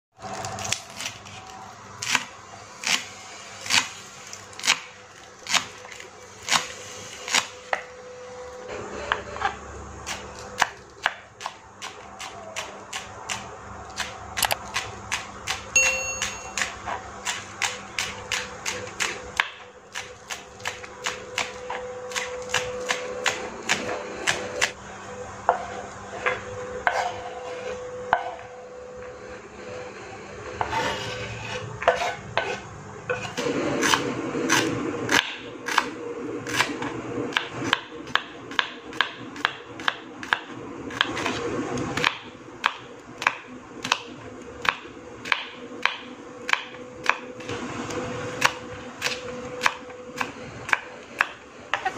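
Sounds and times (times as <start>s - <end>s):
knife scraping cutting board: 8.8s - 9.6s, 25.5s - 28.5s, 30.5s - 34.8s
knife chopping on wooden board: 25.5s - 28.5s.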